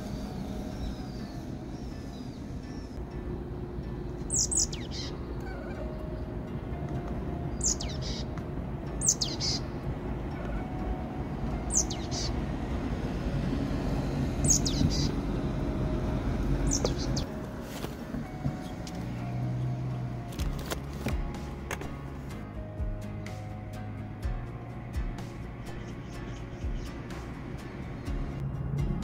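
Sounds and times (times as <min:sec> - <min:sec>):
small bird calling: 0:04.3 - 0:06.3, 0:07.5 - 0:08.4, 0:09.0 - 0:10.8, 0:11.7 - 0:12.4, 0:14.4 - 0:15.2, 0:16.6 - 0:17.3.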